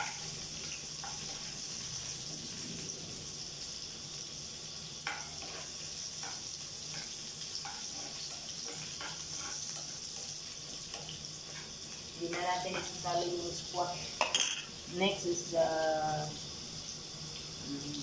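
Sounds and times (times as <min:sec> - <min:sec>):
spatula scraping and tapping pan: 0:00.0 - 0:02.1, 0:05.0 - 0:13.2
food sizzling in oil: 0:00.0 - 0:18.0.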